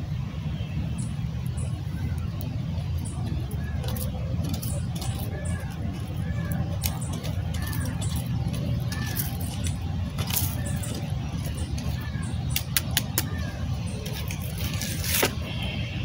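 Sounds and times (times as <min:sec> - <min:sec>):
steady low rumble: 0:00.0 - 0:16.0
stick scraping through ashes: 0:14.0 - 0:15.5.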